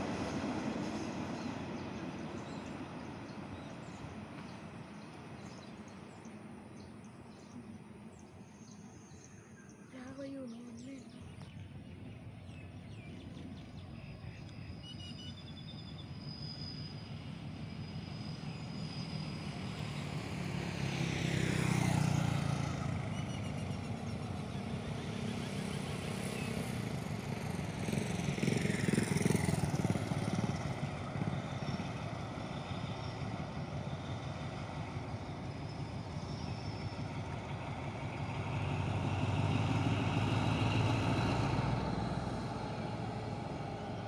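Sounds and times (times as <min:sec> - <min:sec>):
road traffic passing: 0:00.0 - 0:44.0
motorcycle passing: 0:19.1 - 0:44.0.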